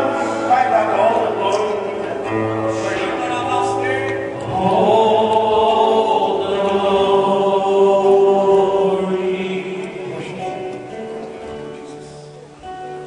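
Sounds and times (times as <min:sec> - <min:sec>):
group of voices singing: 0:02.1 - 0:11.4.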